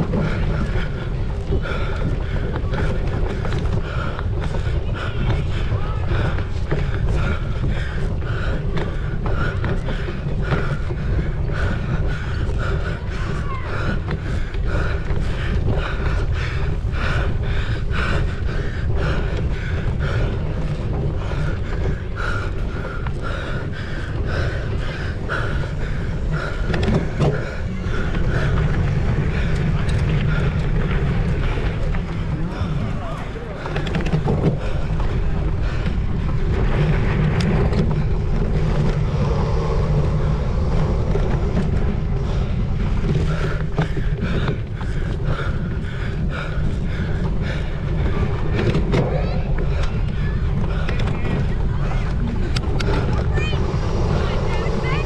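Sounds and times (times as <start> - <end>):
person panting hard: 0.0 - 55.0
wind rumble on microphone: 0.0 - 55.0.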